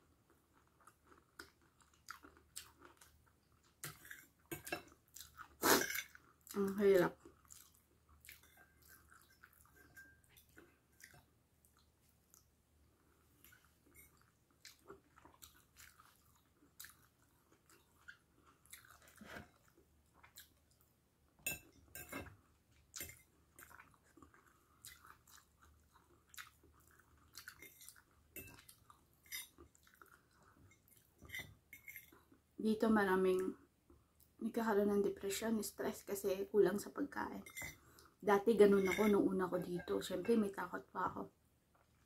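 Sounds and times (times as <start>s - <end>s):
chewing food: 0.0s - 32.5s.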